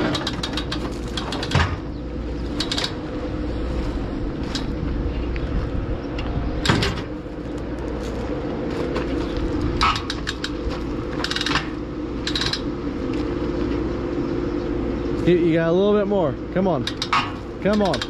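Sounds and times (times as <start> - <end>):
metal clanks and knocks: 0.0 - 2.0, 8.9 - 12.7, 16.8 - 18.0
engine running: 0.0 - 18.0.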